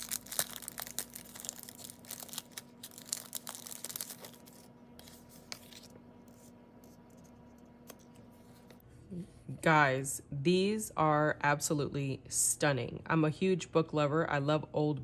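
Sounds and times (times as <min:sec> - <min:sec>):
plastic packet crinkling: 0:00.0 - 0:05.9.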